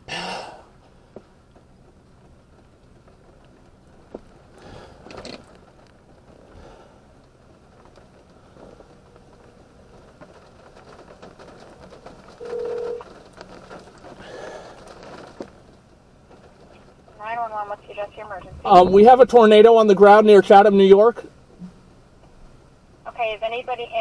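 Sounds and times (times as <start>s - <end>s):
soft knocks and rustles: 7.2s - 17.2s
phone ringing tone: 12.4s - 13.0s.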